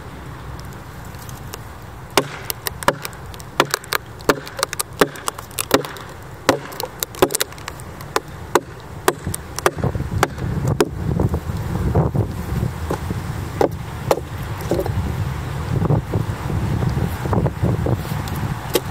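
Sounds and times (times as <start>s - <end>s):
axe chopping log: 2.1s - 11.3s, 13.6s - 14.9s.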